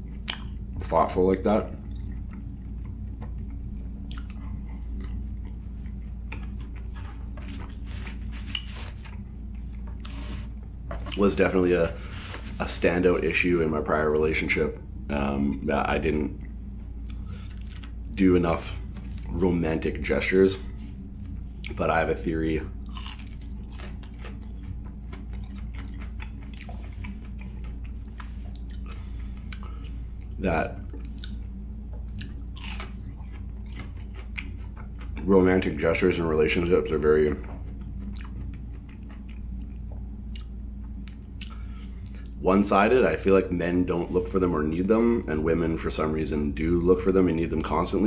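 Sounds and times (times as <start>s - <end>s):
steady low hum: 0.0s - 48.0s
chewing crunchy fried food: 1.7s - 11.3s, 22.8s - 35.8s, 37.2s - 42.4s.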